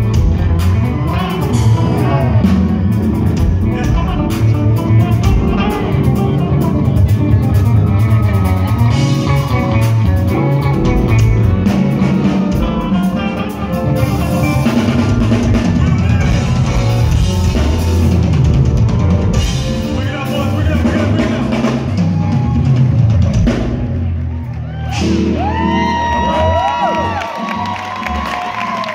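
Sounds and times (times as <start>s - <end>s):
electric guitar: 0.0s - 19.9s
drum kit: 0.0s - 28.9s.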